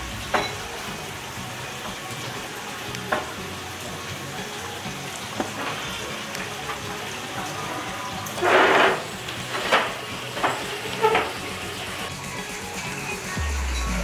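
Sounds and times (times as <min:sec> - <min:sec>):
food frying in hot oil: 0:00.0 - 0:14.0.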